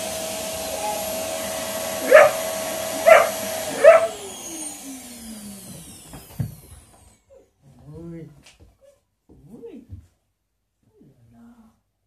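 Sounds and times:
vacuum cleaner motor whine: 0:00.0 - 0:07.3
puppy barking: 0:02.0 - 0:02.4, 0:03.0 - 0:04.2.

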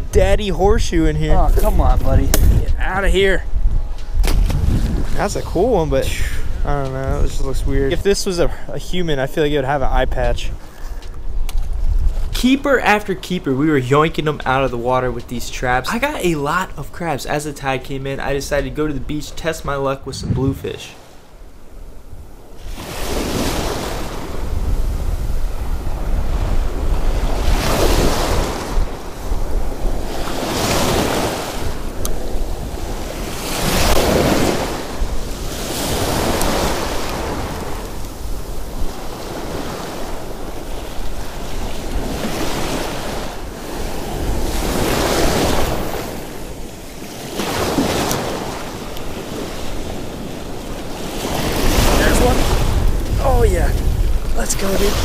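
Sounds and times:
wind rumbling on microphone: 0:00.0 - 0:12.5, 0:20.0 - 0:47.0, 0:47.6 - 0:55.0
small waves breaking: 0:20.2 - 0:55.0.

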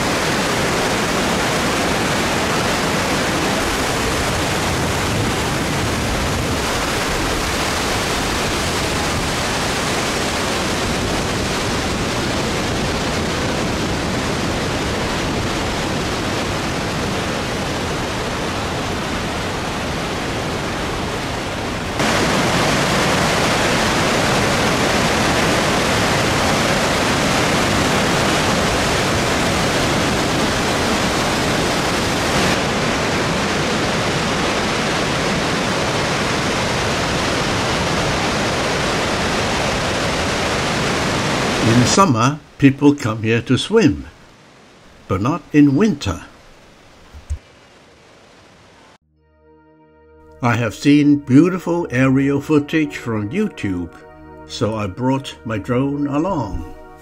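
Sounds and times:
waterfall rushing: 0:00.0 - 0:42.2.

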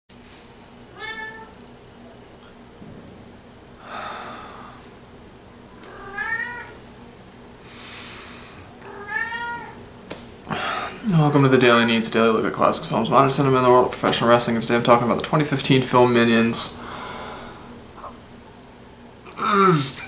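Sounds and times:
cat meowing: 0:00.9 - 0:01.5, 0:05.9 - 0:06.8, 0:08.8 - 0:09.8
long breathy sounds: 0:03.8 - 0:05.0, 0:07.6 - 0:08.7, 0:16.8 - 0:18.2.

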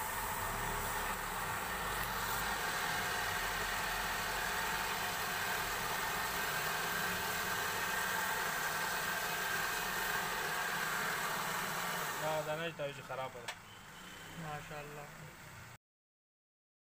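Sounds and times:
pad hissing on turning wood: 0:00.0 - 0:12.6
wood lathe running: 0:00.0 - 0:12.6.

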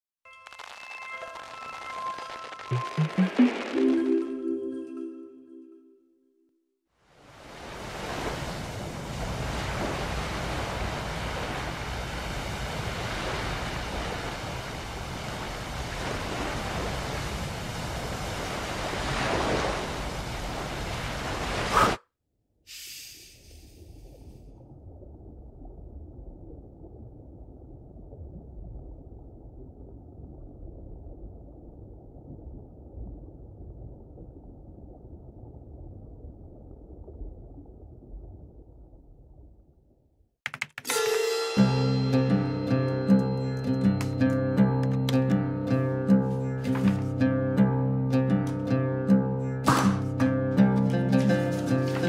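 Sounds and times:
short hiss: 0:22.7 - 0:23.9.

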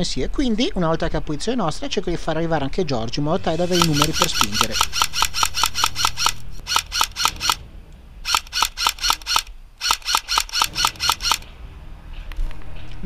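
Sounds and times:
airsoft rifle firing bursts: 0:03.6 - 0:07.6, 0:08.3 - 0:11.5.

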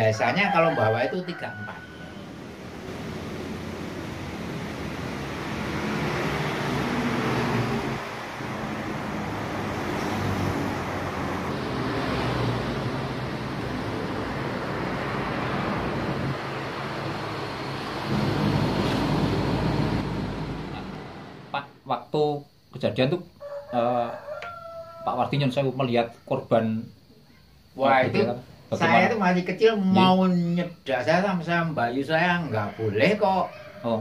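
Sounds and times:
outdoor rushing noise: 0:02.2 - 0:21.7.

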